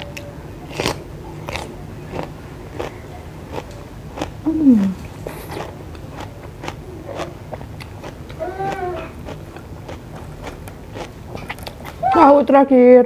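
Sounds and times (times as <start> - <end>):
person chewing: 0.0 - 12.2
person humming: 4.5 - 5.0.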